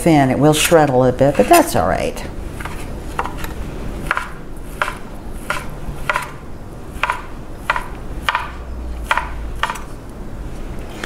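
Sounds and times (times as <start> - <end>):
knife chopping on cutting board: 4.0 - 6.4, 7.0 - 9.8.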